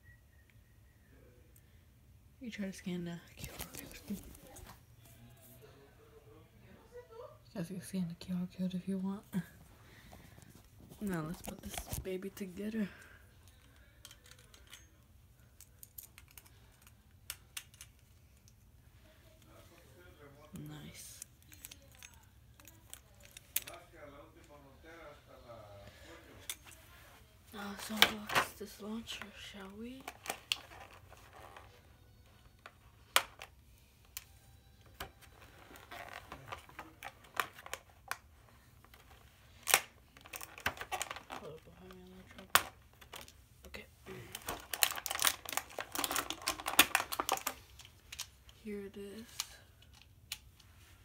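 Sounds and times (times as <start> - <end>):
plastic packaging rustling: 3.3 - 4.8, 26.9 - 31.8, 35.2 - 50.2
small plastic parts clicking: 15.6 - 18.6.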